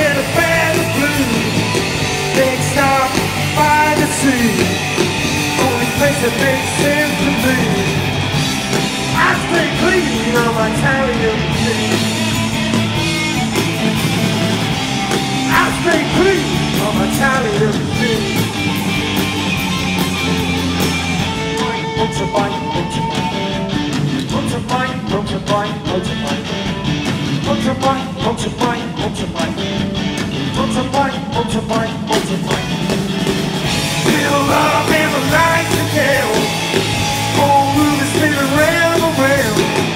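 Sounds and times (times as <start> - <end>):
drum kit: 0.0 - 39.9
electric bass: 0.0 - 39.9
electric guitars: 0.0 - 39.9.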